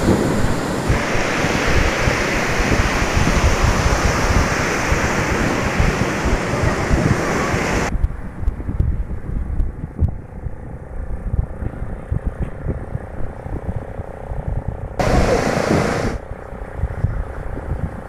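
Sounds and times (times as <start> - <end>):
surf breaking on sand: 0.0 - 7.9, 15.0 - 16.2
wind buffeting microphone: 0.0 - 18.0.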